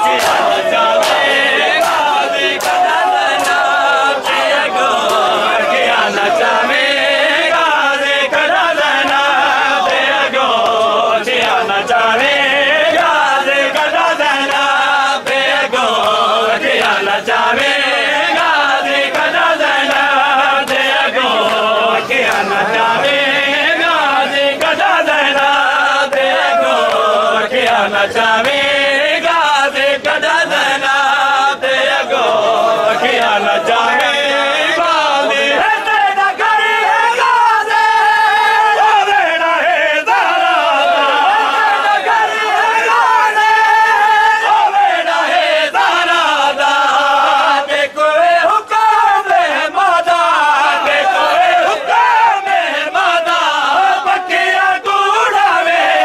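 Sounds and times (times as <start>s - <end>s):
men chanting a lament: 0.0s - 56.0s
chest-beating slaps: 0.1s - 3.7s.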